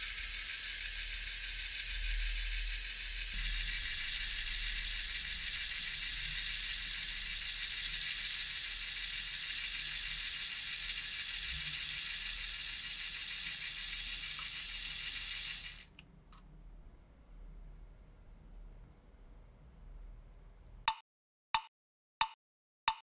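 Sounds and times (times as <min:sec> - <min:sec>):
electric motor whirring: 0:00.0 - 0:16.0.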